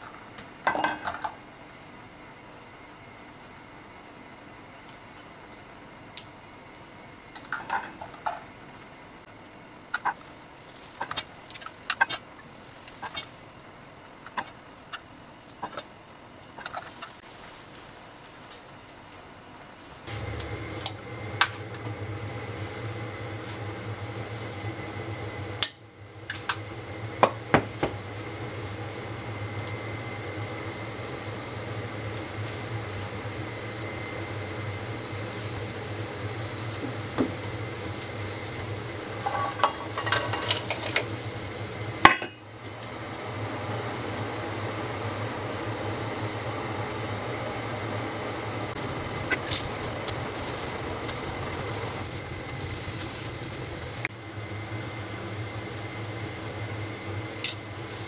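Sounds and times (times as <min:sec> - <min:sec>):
pots and utensils clinking: 0:00.7 - 0:01.4, 0:39.2 - 0:41.1, 0:42.1 - 0:42.4
steady low hum: 0:19.6 - 0:58.0.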